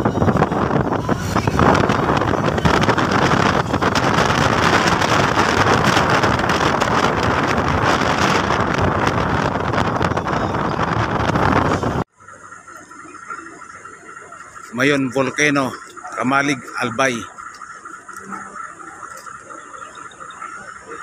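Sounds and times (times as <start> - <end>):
wind buffeting microphone: 0.0 - 12.1
vehicle running noise: 0.0 - 21.0.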